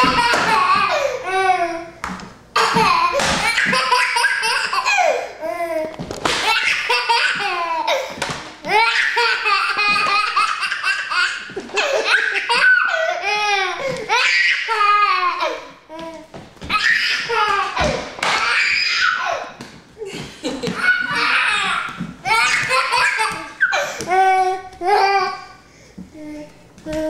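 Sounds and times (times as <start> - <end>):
toddler laughing: 0.0 - 2.0, 2.6 - 15.7, 16.7 - 25.5.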